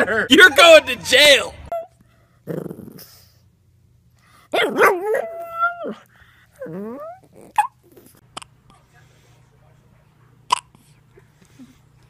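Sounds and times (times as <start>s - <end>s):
puppy howling: 4.6s - 6.0s, 6.6s - 7.7s.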